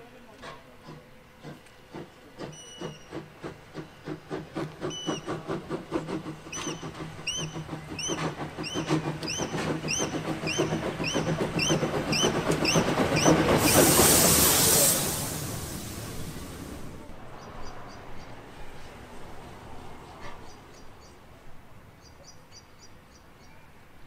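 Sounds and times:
steam locomotive chuffing: 0:00.4 - 0:17.4
loud hiss of steam: 0:00.6 - 0:17.4
rhythmic squeak: 0:04.8 - 0:05.4, 0:06.5 - 0:13.6.

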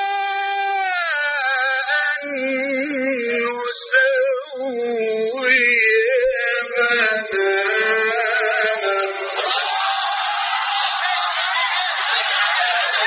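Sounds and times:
man chanting melodically: 0:00.0 - 0:09.5.

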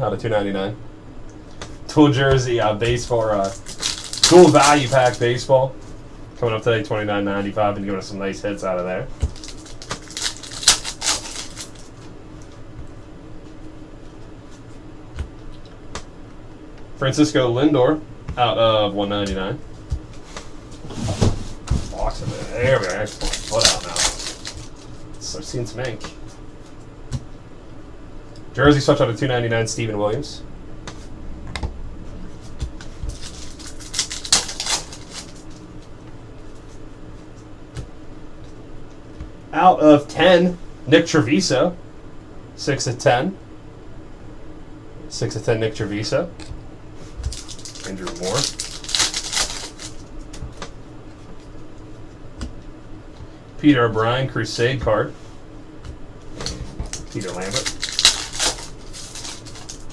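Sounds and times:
foil wrapper crinkling and tearing: 0:02.8 - 0:05.4, 0:09.2 - 0:12.0, 0:21.9 - 0:25.4, 0:33.1 - 0:35.6, 0:47.3 - 0:50.4, 0:56.8 - 0:59.9.

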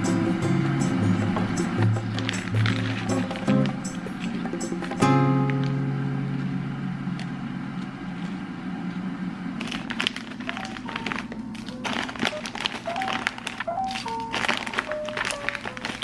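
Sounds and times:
background music: 0:00.0 - 0:06.2
plastic packet crinkling: 0:01.7 - 0:05.0, 0:09.6 - 0:16.0.

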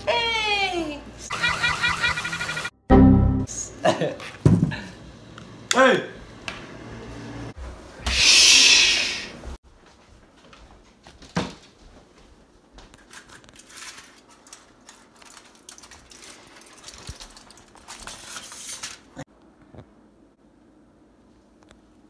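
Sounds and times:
aluminium foil crinkling: 0:13.0 - 0:19.2.

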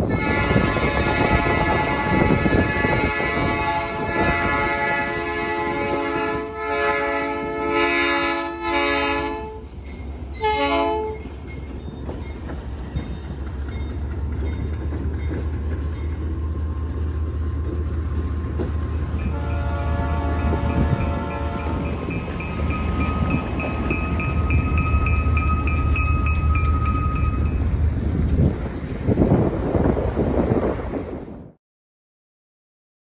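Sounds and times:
locomotive air horn blasts: 0:00.1 - 0:09.6, 0:10.4 - 0:11.3, 0:19.2 - 0:22.0
diesel engine rumbling: 0:11.2 - 0:30.3.

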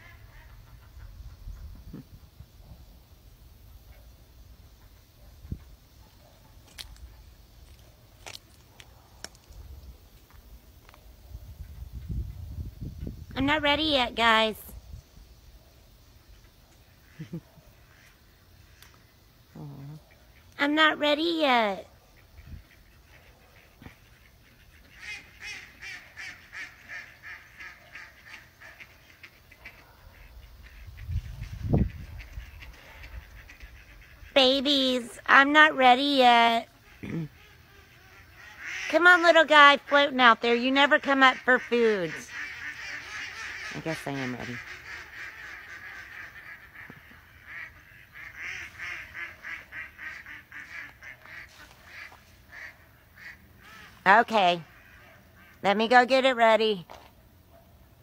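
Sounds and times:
ducks quacking: 0:00.0 - 0:02.4, 0:16.3 - 0:18.9, 0:19.9 - 0:56.4.

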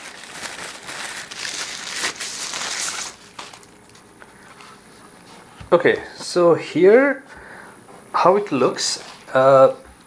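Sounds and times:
plastic packaging crinkling: 0:00.0 - 0:04.1.

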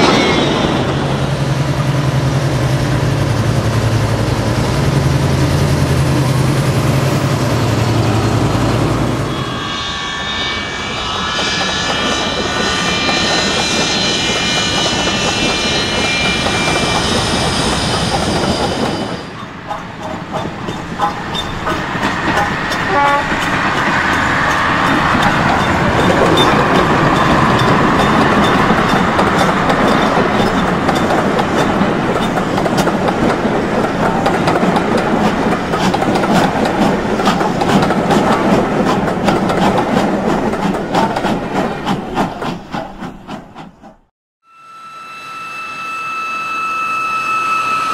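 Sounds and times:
rising tone: 0:06.0 - 0:30.9
steady high-toned whine: 0:09.2 - 0:19.5, 0:44.5 - 0:47.9
train wheels clicking over rail joints: 0:11.4 - 0:44.1.

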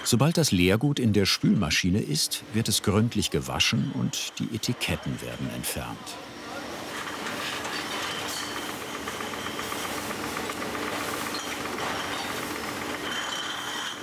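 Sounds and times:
glass bottles rattling: 0:11.3 - 0:14.0.

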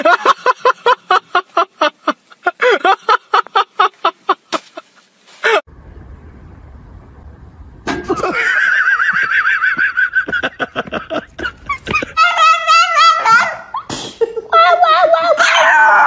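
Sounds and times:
faint low rumble: 0:05.7 - 0:08.5.

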